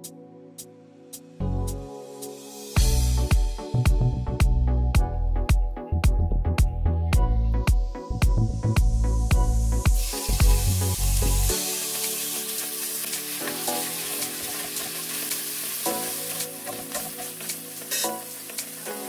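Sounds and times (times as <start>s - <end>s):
music with heavy bass beat: 2.8s - 12.0s
food sizzling in hot oil: 8.8s - 19.0s.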